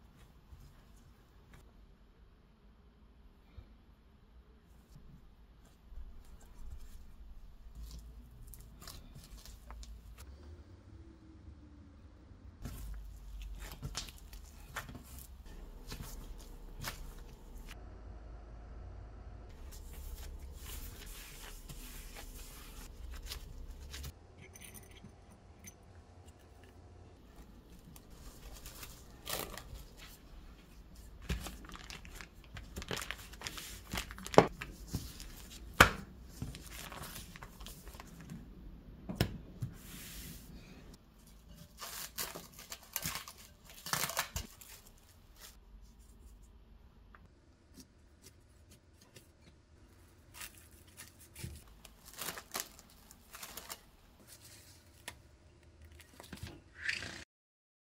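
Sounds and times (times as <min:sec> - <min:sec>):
plastic bag crinkling: 0:27.4 - 0:35.6, 0:51.6 - 0:54.4.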